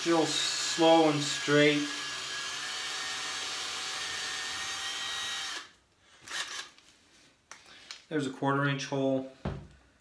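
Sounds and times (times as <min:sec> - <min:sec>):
cordless drill boring: 0:00.0 - 0:06.8.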